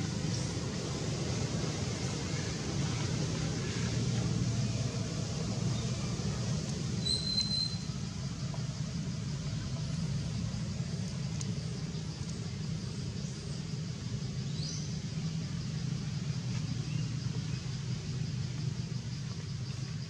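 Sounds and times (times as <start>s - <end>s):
low outdoor background rumble: 0.0s - 20.0s
faint high chirps: 7.0s - 7.9s.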